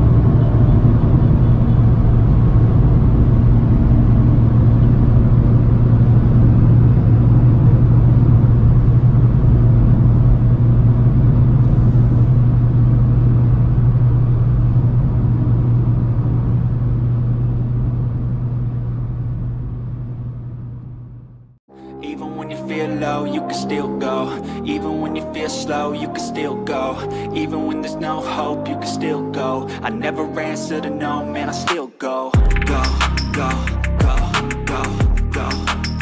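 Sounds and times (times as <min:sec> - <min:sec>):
wind noise: 0:00.0 - 0:20.7
road noise: 0:00.0 - 0:21.2
car engine drone: 0:00.0 - 0:21.6.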